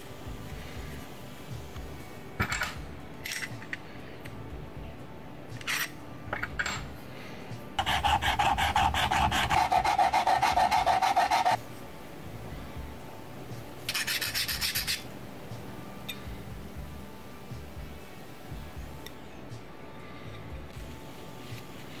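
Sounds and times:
hand file rasping on metal: 7.8s - 11.6s, 13.9s - 15.0s.

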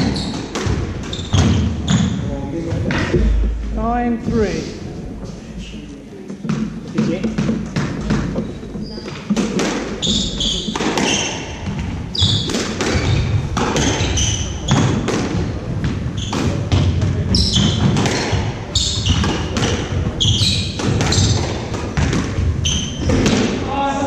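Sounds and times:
shoes squeaking on wooden floor: 0.0s - 2.8s, 6.2s - 14.9s, 16.1s - 23.4s
squash ball smacking rackets and walls: 0.0s - 3.2s, 6.3s - 23.7s
footsteps thudding: 2.7s - 5.5s.

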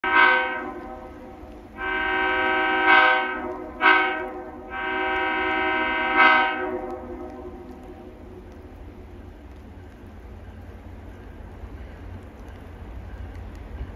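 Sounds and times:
horn echo: 0.0s - 7.6s
locomotive horn blasts: 0.0s - 7.6s.

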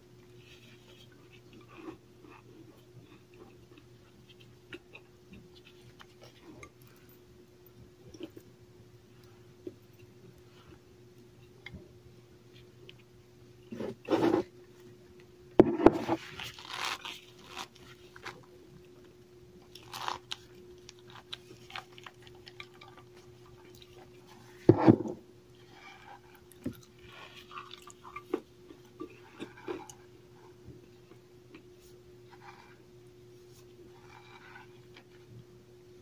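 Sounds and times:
crackly chewing: 0.2s - 7.2s, 16.2s - 24.6s, 25.6s - 32.7s.

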